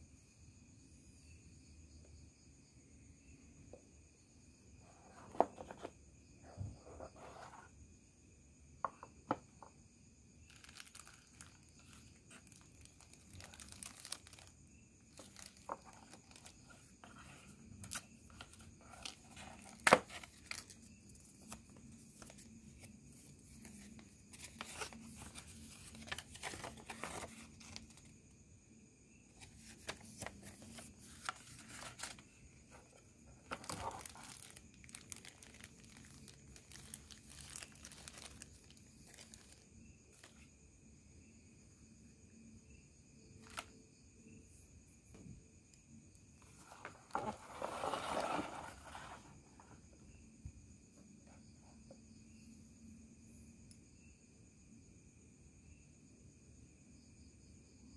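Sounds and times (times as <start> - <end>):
paper and cardboard rustling: 5.0 - 5.9, 10.5 - 14.5, 15.1 - 20.8, 21.4 - 28.1, 29.4 - 39.6, 46.4 - 49.7.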